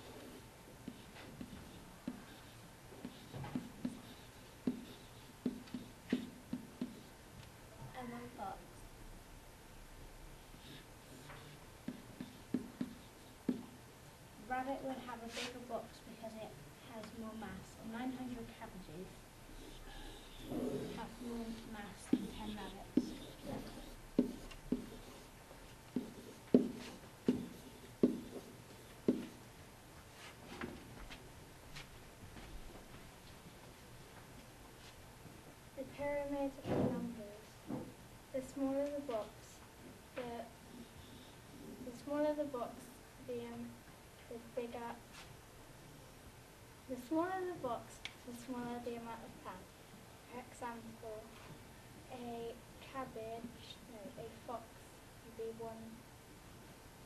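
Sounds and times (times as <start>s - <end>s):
pen writing on hard surface: 0.0s - 7.1s, 10.6s - 13.8s, 19.5s - 29.4s
pen tapping on touch screen: 21.2s - 25.2s, 26.0s - 28.4s.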